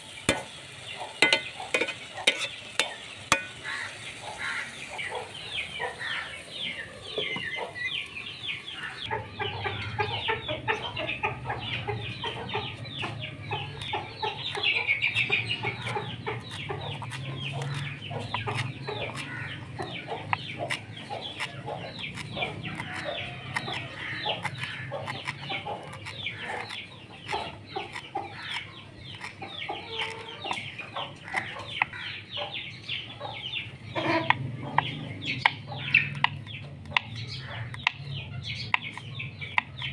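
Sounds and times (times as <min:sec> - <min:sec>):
chickens clucking: 0:00.0 - 0:39.9
knife chopping on wooden board: 0:15.2 - 0:30.2.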